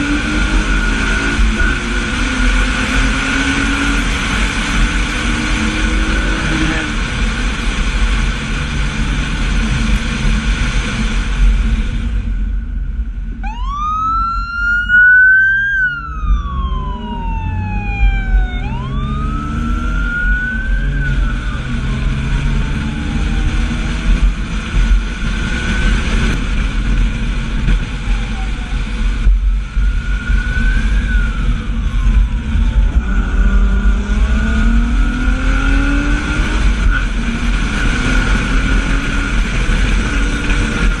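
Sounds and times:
car engine and road noise: 0:00.0 - 0:41.0
police siren wailing: 0:13.4 - 0:24.2, 0:29.6 - 0:35.0.

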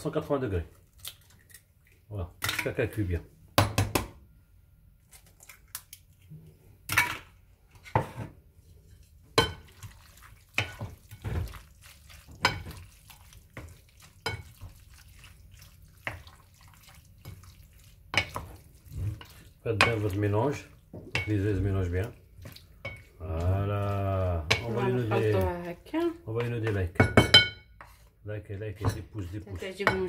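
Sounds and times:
wooden spoon knocking glass bowl: 0:26.4 - 0:27.6.

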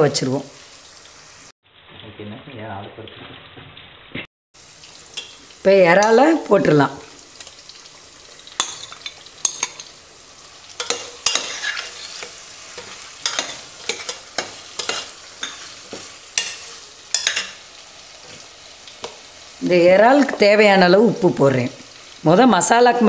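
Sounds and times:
prawns sizzling in pot: 0:00.0 - 0:23.0
spoon scraping metal pot: 0:10.8 - 0:17.6.

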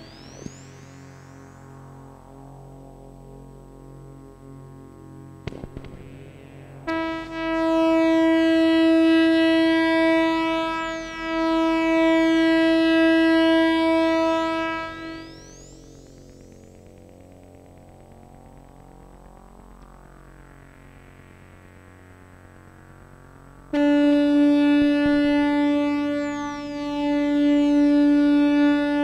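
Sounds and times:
synthesizer held note: 0:00.0 - 0:01.7, 0:06.7 - 0:16.9, 0:23.7 - 0:29.0.

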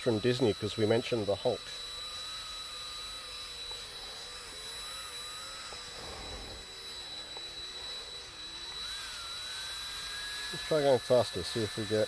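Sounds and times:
cordless drill motor whine: 0:00.0 - 0:12.0.

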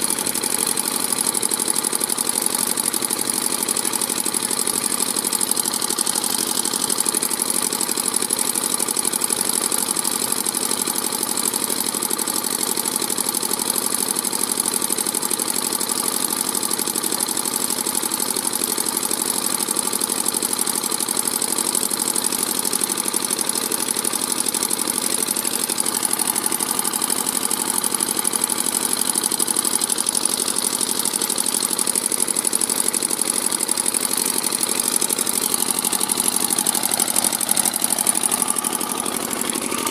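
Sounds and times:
diesel engine running: 0:24.2 - 0:39.9.

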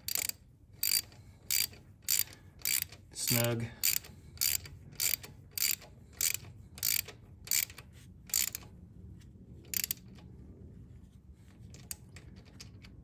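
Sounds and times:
ratchet clicking: 0:00.0 - 0:08.7, 0:09.7 - 0:10.3.

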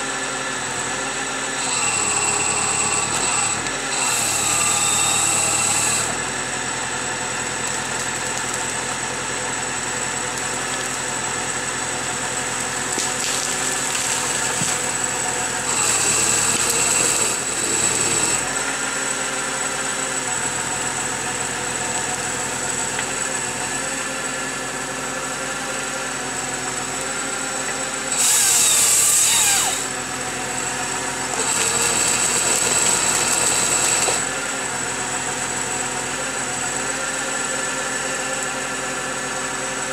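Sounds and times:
tractor engine running: 0:00.0 - 0:39.9.

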